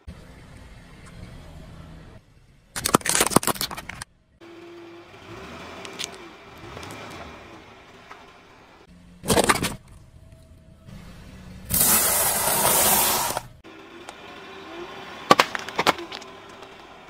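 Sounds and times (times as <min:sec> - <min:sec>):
plastic cracking: 0:02.8 - 0:04.1.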